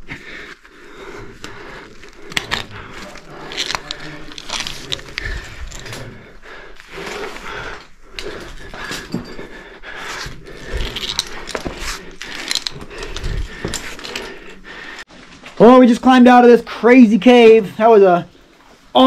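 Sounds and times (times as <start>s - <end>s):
heavy breathing: 0.0s - 15.3s
climbing gear scraping and clicking: 0.4s - 15.1s.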